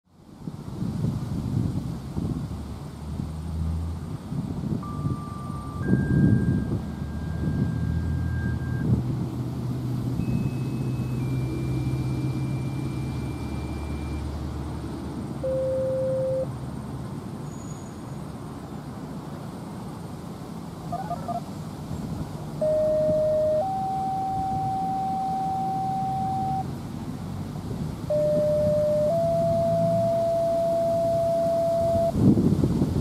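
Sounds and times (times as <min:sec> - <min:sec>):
vehicle passing: 0:01.7 - 0:17.4, 0:18.1 - 0:33.0
steady electronic tones: 0:04.8 - 0:09.0, 0:09.9 - 0:14.7, 0:15.4 - 0:16.5, 0:22.6 - 0:26.7, 0:28.1 - 0:32.2.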